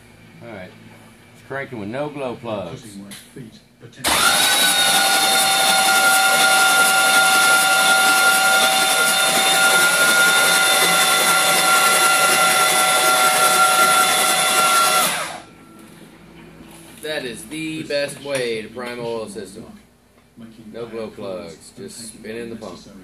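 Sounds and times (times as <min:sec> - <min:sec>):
starter motor cranking engine: 0:04.0 - 0:15.4.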